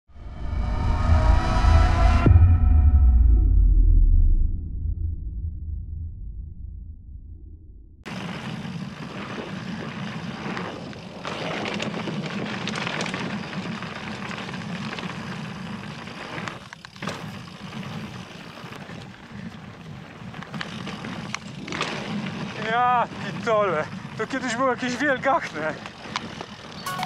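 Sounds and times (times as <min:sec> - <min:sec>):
bike tyres and frame rattling: 0:08.1 - 0:27.0.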